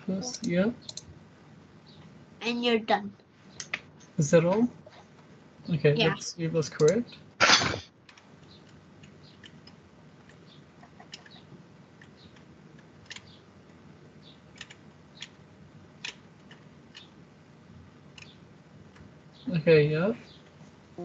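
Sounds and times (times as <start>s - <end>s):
low steady hum: 0.0s - 21.0s
keyboard and mouse clicking: 0.4s - 1.1s, 6.8s - 7.0s, 8.1s - 11.4s, 12.0s - 13.4s, 14.5s - 15.4s, 16.0s - 17.1s, 18.1s - 19.1s.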